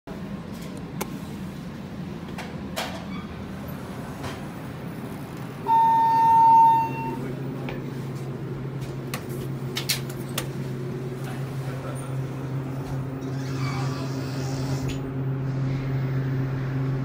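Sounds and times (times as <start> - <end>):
elevator electronic chime: 5.6 - 7.4.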